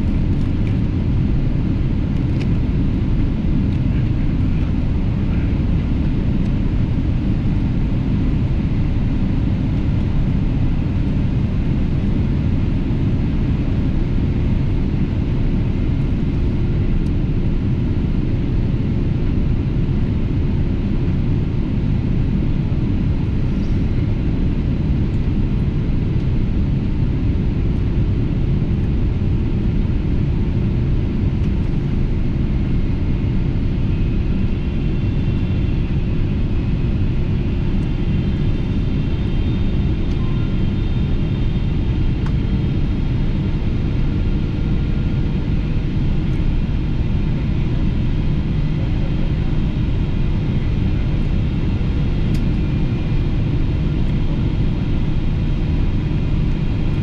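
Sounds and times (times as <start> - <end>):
jet engines rumbling in cabin: 0.0 - 57.0
faint high whine: 33.1 - 46.4.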